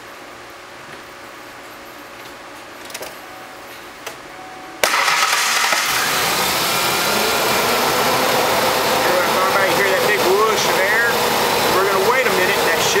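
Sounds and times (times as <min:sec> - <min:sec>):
cooling fan turning: 0:00.0 - 0:13.0
pickup engine starting and running: 0:04.8 - 0:13.0.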